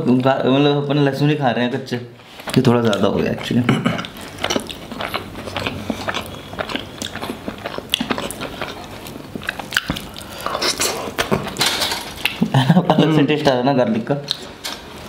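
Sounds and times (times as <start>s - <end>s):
wet chewing mouth sounds: 2.3s - 11.6s.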